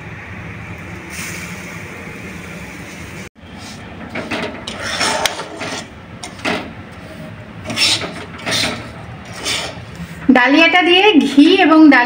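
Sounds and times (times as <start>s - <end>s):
spatula scraping a pan: 4.7s - 9.9s.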